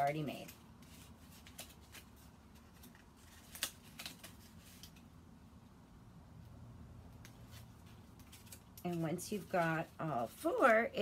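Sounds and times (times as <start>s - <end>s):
paper rustling and ticking: 0.0s - 5.1s, 7.2s - 11.0s.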